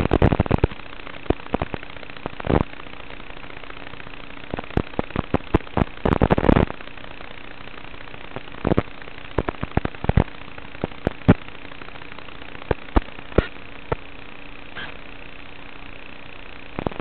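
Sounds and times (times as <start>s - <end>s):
crackling pops: 0.0s - 3.8s, 4.5s - 6.8s, 8.3s - 11.5s, 12.2s - 14.1s
faint hum: 0.0s - 17.0s
static hiss: 0.0s - 17.0s.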